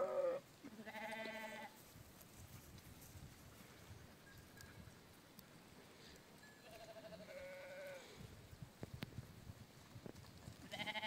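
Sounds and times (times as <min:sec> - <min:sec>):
sheep bleating faintly: 0:06.7 - 0:08.2.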